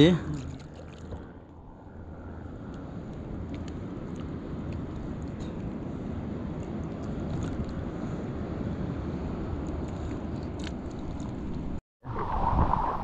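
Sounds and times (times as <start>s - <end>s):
water lapping: 0.1s - 1.4s
wind on microphone: 6.4s - 13.0s.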